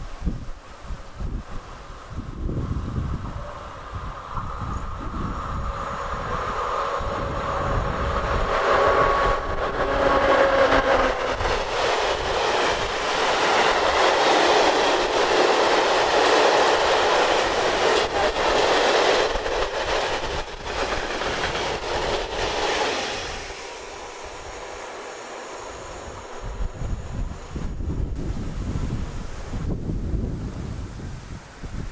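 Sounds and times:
electric locomotive whine: 0.0 - 30.9
wind: 0.0 - 31.9
wagons clattering over rails: 10.2 - 23.3.

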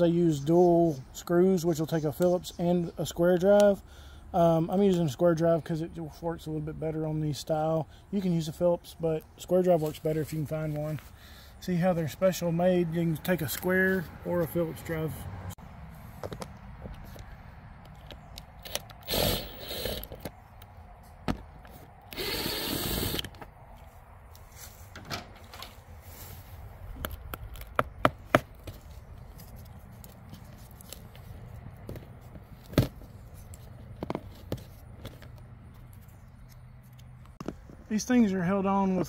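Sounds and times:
cordless drill driving screws: 18.6 - 20.2, 22.1 - 23.3.

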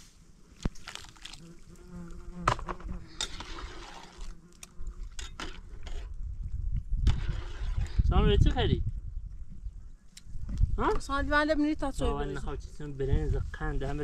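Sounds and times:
insect buzzing: 0.4 - 5.2.

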